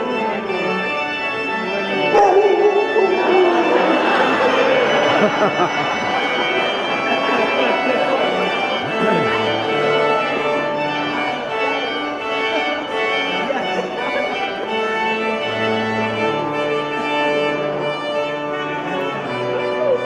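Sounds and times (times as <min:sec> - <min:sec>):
church organ chords: 0:00.0 - 0:20.0.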